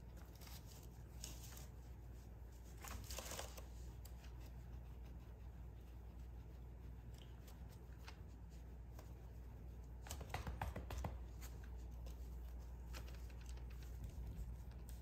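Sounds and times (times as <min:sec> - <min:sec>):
hand rubbing cat fur: 0:00.0 - 0:15.0
hand patting cat: 0:10.0 - 0:11.7.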